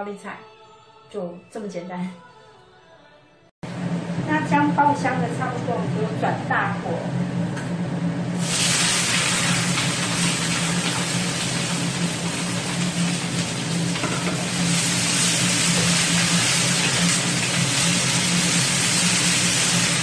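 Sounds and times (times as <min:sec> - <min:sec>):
vegetables sizzling in a wok: 0:08.4 - 0:20.0.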